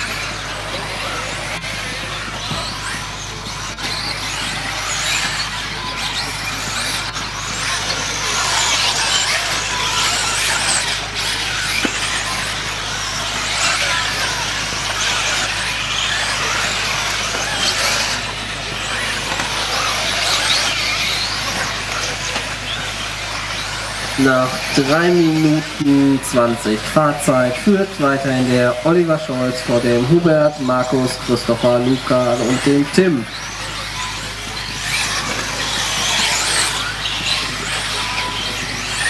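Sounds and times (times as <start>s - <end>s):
rc car electric motors whining: 0.0s - 39.0s.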